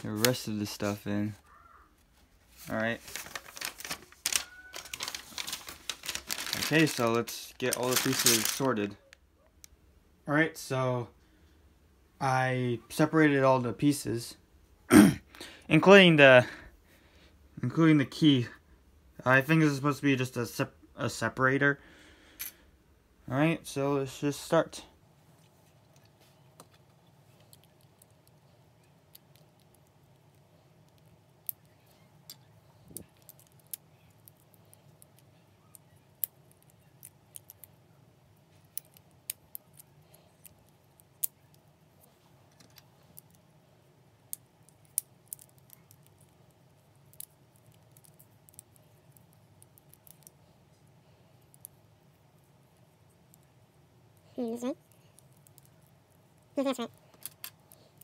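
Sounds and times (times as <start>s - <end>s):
faint low hum: 0.0s - 58.0s
plastic pieces clicking and tapping: 29.0s - 37.8s, 44.3s - 46.4s, 47.0s - 50.4s, 56.6s - 57.9s.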